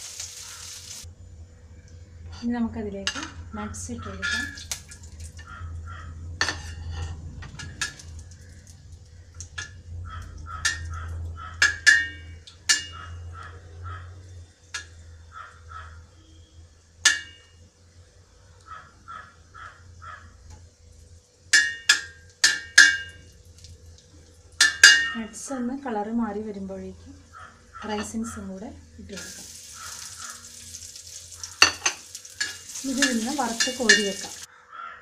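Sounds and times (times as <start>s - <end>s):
steady low hum: 1.0s - 34.5s
bird calling: 29.5s - 30.5s
ladle clinking against metal pot: 31.6s - 34.4s.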